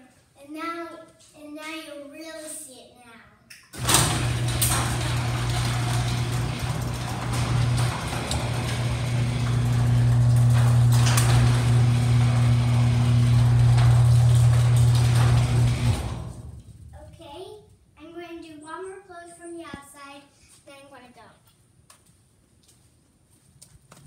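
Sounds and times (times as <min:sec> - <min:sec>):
garage door opener humming: 0:03.8 - 0:17.0
door moving along tracks: 0:03.8 - 0:17.1.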